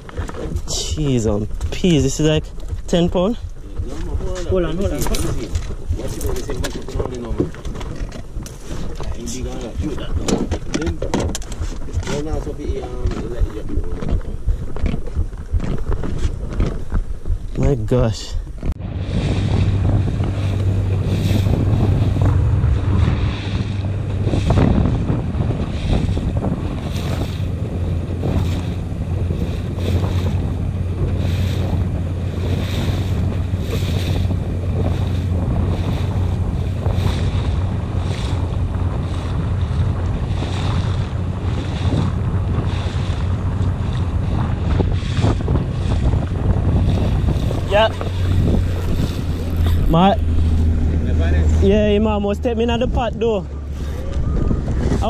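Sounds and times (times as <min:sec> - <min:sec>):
boat motor running: 0:00.0 - 0:55.0
water splashing along hull: 0:00.0 - 0:55.0
wind buffeting microphone: 0:00.0 - 0:55.0.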